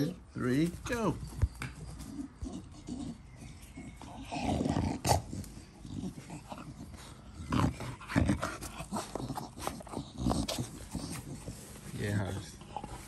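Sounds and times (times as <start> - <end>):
dog panting: 0.0 - 13.0.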